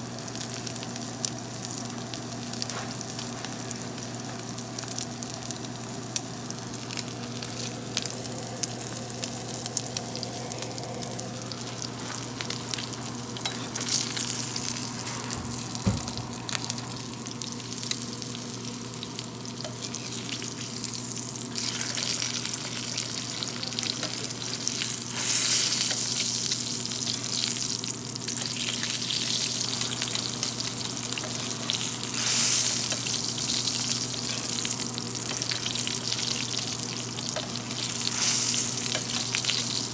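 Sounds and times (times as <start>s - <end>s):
meat sizzling in a skillet: 0.0s - 39.9s
dull knock: 15.8s - 16.2s.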